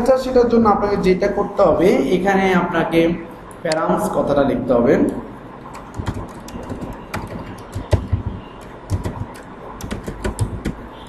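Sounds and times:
computer keyboard typing: 5.1 - 11.0.

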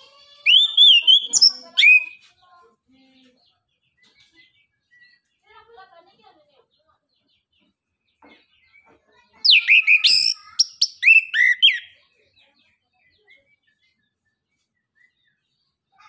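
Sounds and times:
bird whistling song: 0.4 - 2.2, 9.4 - 12.0, 13.3 - 15.5.

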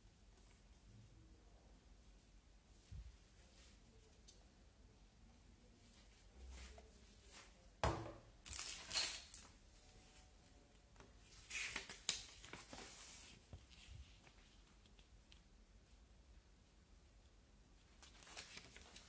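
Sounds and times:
plastic object knocking on table: 7.8 - 8.2
paper rustling: 11.2 - 15.1, 18.0 - 19.0.

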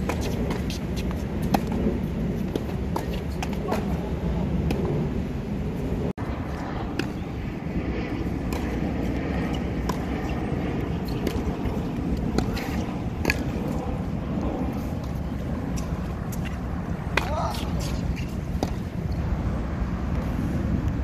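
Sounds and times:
tennis ball bouncing: 0.0 - 4.0, 6.9 - 7.4, 8.3 - 14.1, 14.7 - 19.0
low rumble: 0.0 - 21.0
racket striking tennis ball: 8.4 - 8.8, 11.0 - 13.6.

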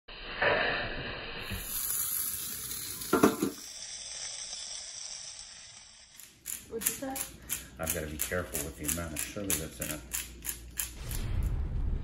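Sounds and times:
chicken wings sizzling over charcoal: 1.4 - 5.8.

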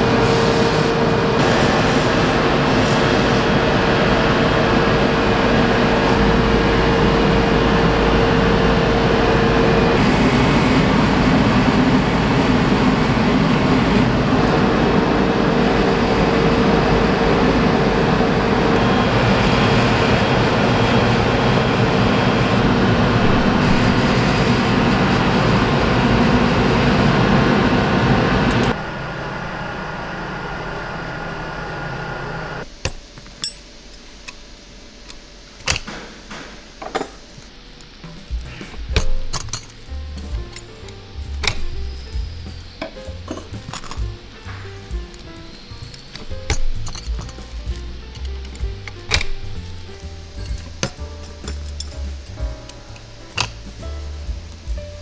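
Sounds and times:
low hum: 0.0 - 35.5, 36.6 - 55.0
metal clicks and clinks: 39.0 - 41.8, 43.2 - 44.1, 45.1 - 53.6.

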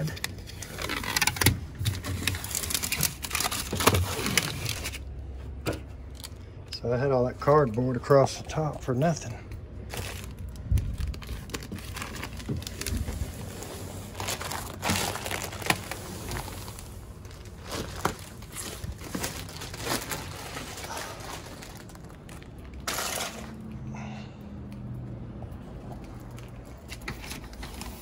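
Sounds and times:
plastic film crinkling: 0.0 - 5.1, 9.8 - 23.6.

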